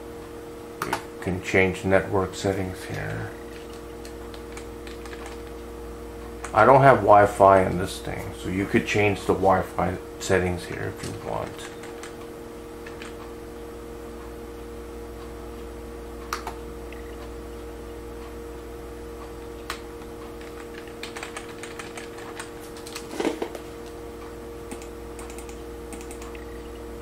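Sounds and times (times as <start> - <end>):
steady low hum: 0.0 - 27.0
computer keyboard clicks: 2.9 - 5.5, 11.0 - 12.2, 12.8 - 13.2, 20.4 - 23.1, 24.7 - 26.4.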